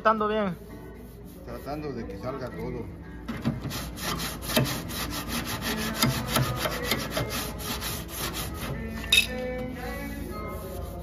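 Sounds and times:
sandpaper rasping over steel: 0:00.6 - 0:02.0, 0:03.6 - 0:09.1, 0:09.8 - 0:11.0.

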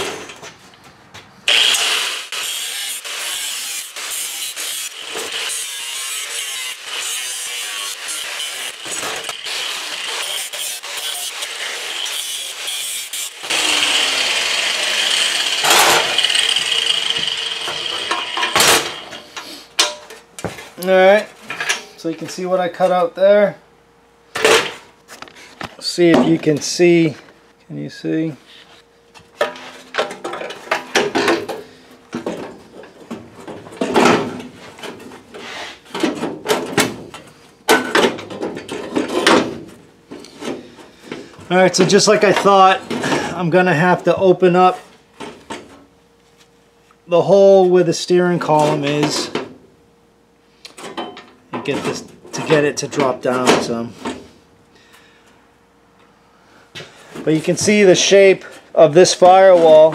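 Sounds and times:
power tool cutting sheet steel: 0:01.5 - 0:19.3
loud metal clank: 0:15.6 - 0:16.2, 0:17.6 - 0:19.2.

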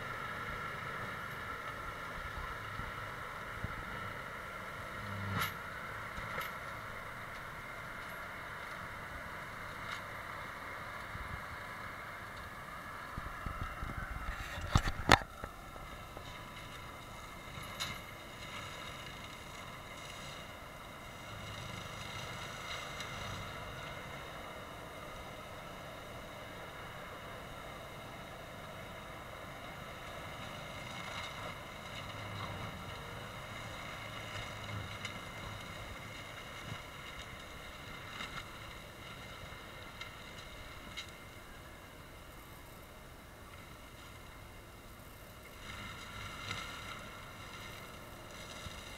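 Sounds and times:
forestry mulcher running: 0:00.0 - 0:48.9.

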